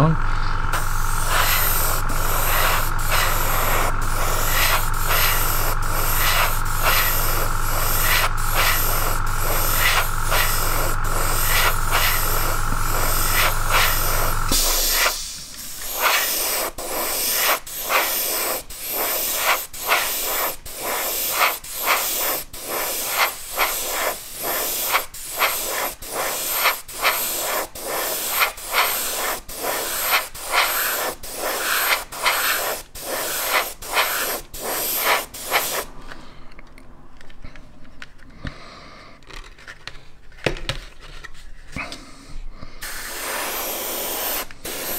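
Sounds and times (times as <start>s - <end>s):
steady low hum: 0.0s - 20.0s
airbrush spraying in pulses: 0.0s - 35.9s, 42.8s - 44.9s.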